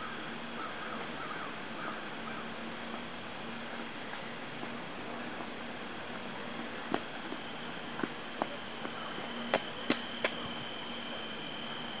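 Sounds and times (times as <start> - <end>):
outdoor background hiss: 0.0 - 12.0
thin high steady tone: 0.0 - 12.0
sharp clicks: 9.5 - 10.4.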